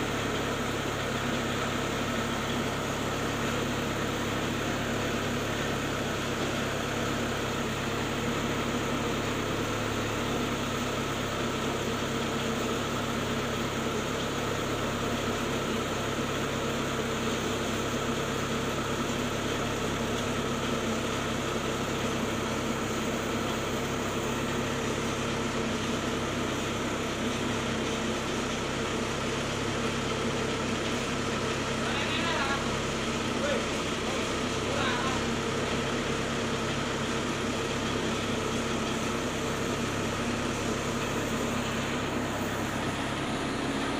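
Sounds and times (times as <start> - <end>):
machine motor droning: 29.1 - 43.9.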